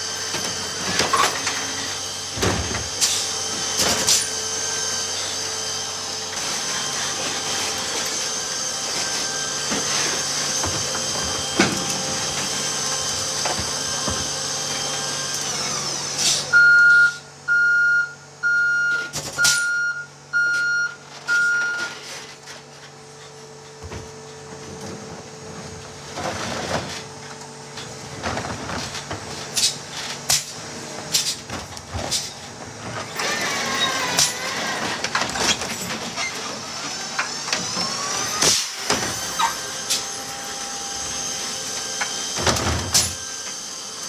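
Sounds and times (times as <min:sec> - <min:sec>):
electric arm drive whine: 0:00.0 - 0:44.0
electronic warning beeps: 0:16.5 - 0:22.0.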